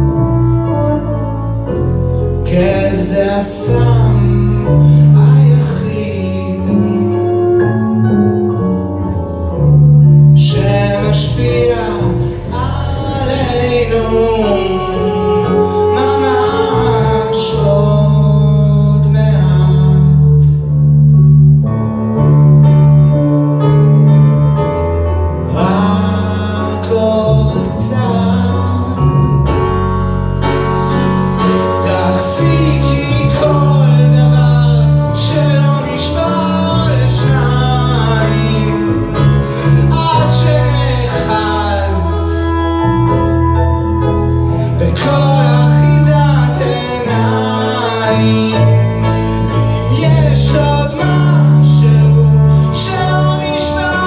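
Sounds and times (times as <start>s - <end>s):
bowed cello: 0.0s - 54.0s
grand piano: 0.0s - 54.0s
person singing: 10.2s - 20.6s, 31.7s - 42.9s, 44.6s - 54.0s.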